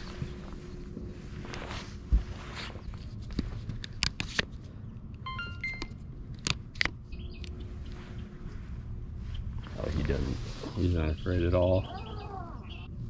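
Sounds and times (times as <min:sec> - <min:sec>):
short electronic beeps: 0:05.2 - 0:06.0.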